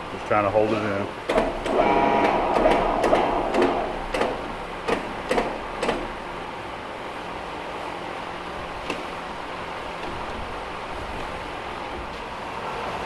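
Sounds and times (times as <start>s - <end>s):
machine whirring loudly: 1.3s - 7.5s.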